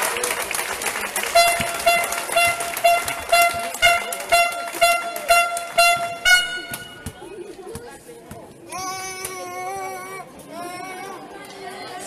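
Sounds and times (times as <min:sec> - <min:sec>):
hand claps: 0:00.0 - 0:07.2
horn tooting short notes: 0:01.3 - 0:07.2.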